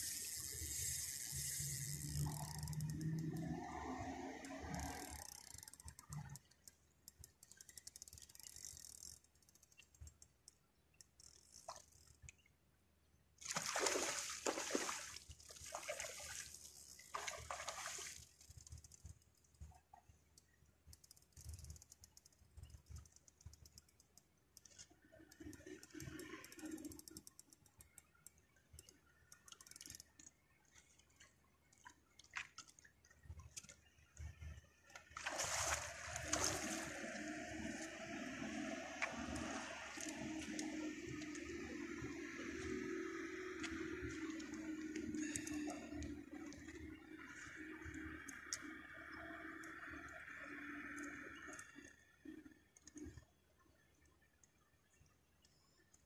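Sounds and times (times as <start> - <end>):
fish thrashing water splashing: 13.4 - 18.2, 35.2 - 37.0.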